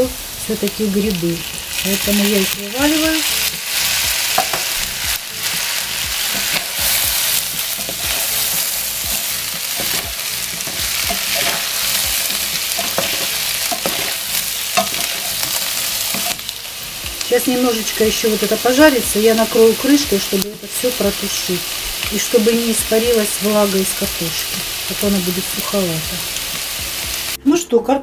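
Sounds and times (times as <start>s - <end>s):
vegetables sizzling in oil: 0.0s - 27.7s
wooden spatula scraping pan: 6.2s - 16.5s.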